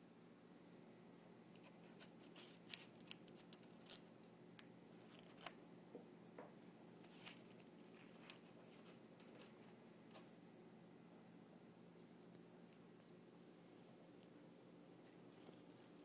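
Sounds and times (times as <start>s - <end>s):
faint hum: 0.0s - 16.0s
paper clicking and rustling: 1.6s - 4.1s, 5.0s - 5.6s, 7.0s - 9.8s.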